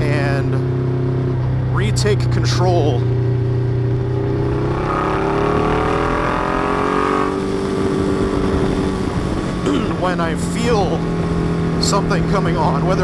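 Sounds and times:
motorcycle engine accelerating: 0.0s - 13.0s
wind noise: 5.6s - 13.0s.

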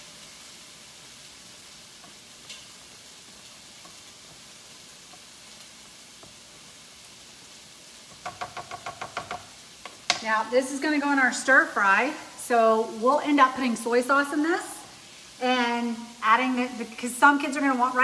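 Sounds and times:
chicken sizzling in a frying pan: 0.0s - 18.0s.

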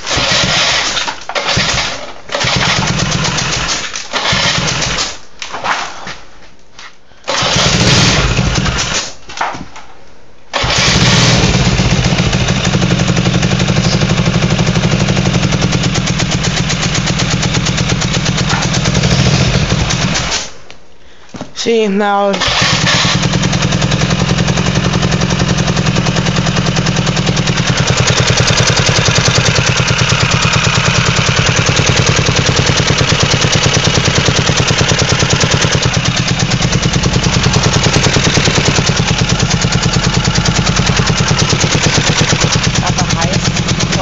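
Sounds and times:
mini bike engine starting: 0.0s - 5.2s, 7.3s - 9.2s, 10.5s - 20.5s, 22.3s - 44.0s.

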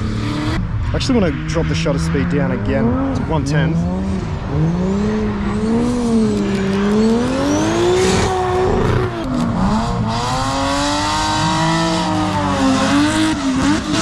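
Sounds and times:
car engine revving hard: 0.0s - 14.0s.

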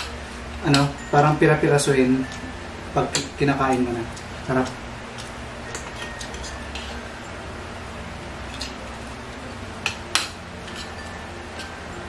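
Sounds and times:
steady low hum: 0.0s - 12.0s
cutlery clinking on plates: 4.6s - 7.0s.

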